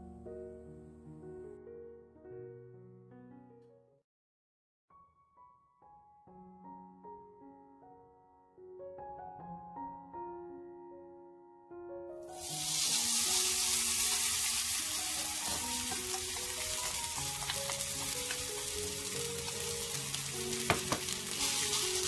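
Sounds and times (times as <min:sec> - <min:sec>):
carrot sizzling in hot oil: 0:12.3 - 0:22.0.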